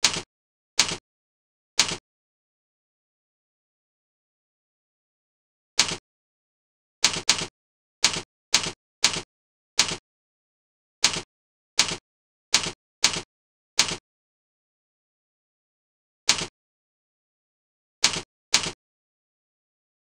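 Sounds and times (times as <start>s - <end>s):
keyboard keystrokes clacking: 0.0s - 1.0s, 1.8s - 2.0s, 5.8s - 6.0s, 7.0s - 10.0s, 11.0s - 12.0s, 12.6s - 14.0s, 18.0s - 18.8s.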